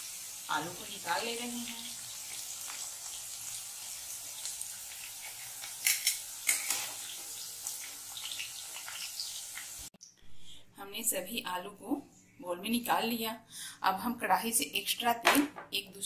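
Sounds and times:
potatoes sizzling in hot oil: 0.0s - 9.9s.

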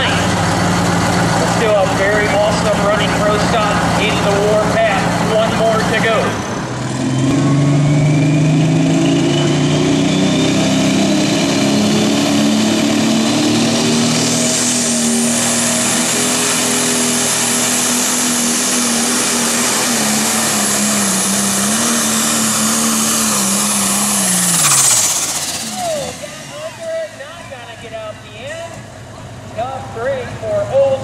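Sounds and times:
tractor diesel engine under load: 0.0s - 31.0s
high turbo whistle: 13.2s - 27.8s.

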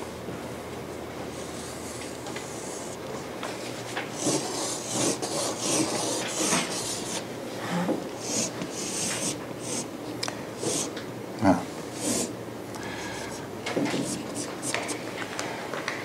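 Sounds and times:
chalk scraping on a blackboard: 4.2s - 7.2s, 8.2s - 9.9s, 13.2s - 15.0s.

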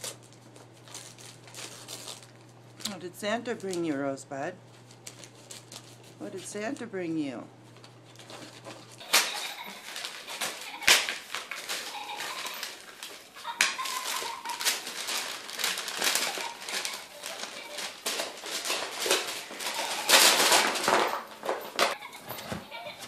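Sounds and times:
paper crinkling and ripping: 0.0s - 2.6s, 4.7s - 6.4s, 7.8s - 23.0s.

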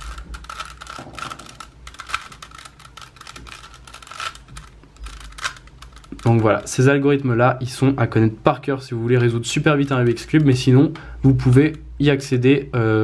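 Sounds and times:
puzzle cube clicking: 0.0s - 6.8s.

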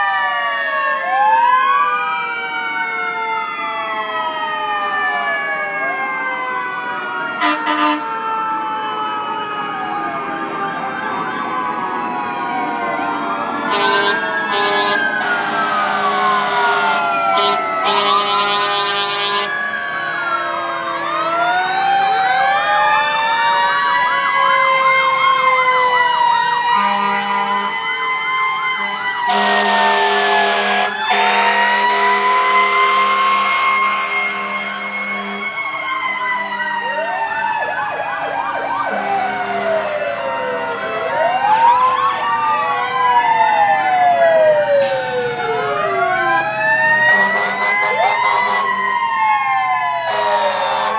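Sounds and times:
fire truck sirens wailing: 0.0s - 50.9s
horn blasts: 7.4s - 8.2s, 13.7s - 19.6s, 26.8s - 27.8s, 28.8s - 35.6s, 47.0s - 48.8s, 50.1s - 50.9s.

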